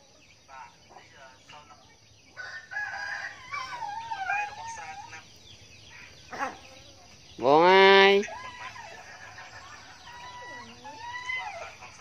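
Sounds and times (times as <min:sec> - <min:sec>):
rooster-like crow: 0:02.4 - 0:04.6.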